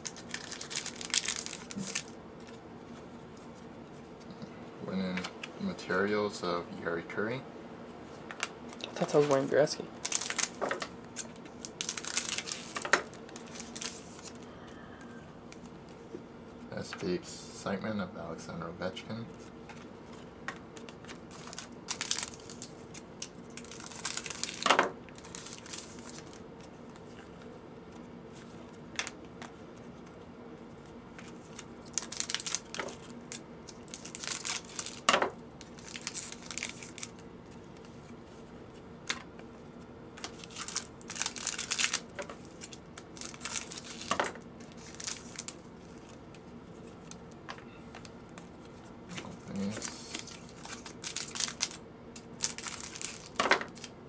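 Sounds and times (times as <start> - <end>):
foil wrappers crinkling: 0.0 - 2.6, 8.7 - 14.5, 20.7 - 27.4, 31.1 - 38.1, 40.2 - 47.4, 48.0 - 54.0
faint steady hum: 0.0 - 54.0.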